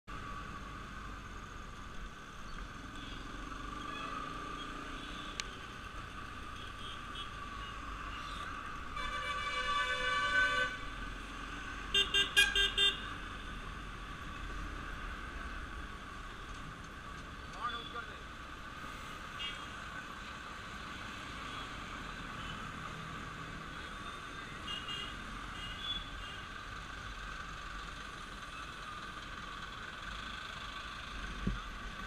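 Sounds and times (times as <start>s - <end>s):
motorcycle and traffic noise: 0.1s - 32.0s
vehicle horn honking: 9.0s - 10.8s, 11.9s - 13.0s.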